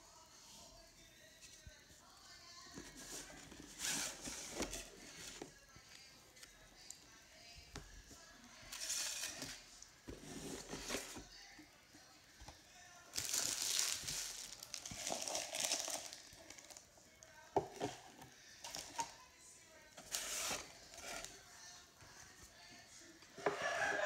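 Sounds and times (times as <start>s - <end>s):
foil packs crinkling: 13.2s - 16.8s.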